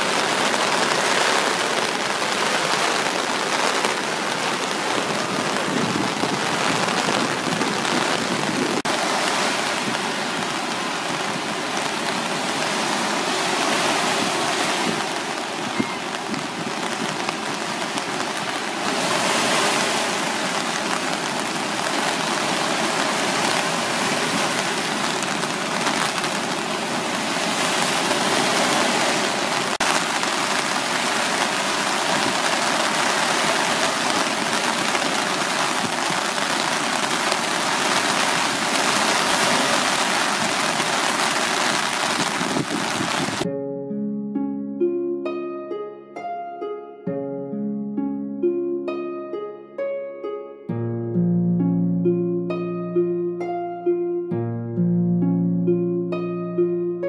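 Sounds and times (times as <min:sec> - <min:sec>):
waves breaking on beach: 0:00.0 - 0:43.5.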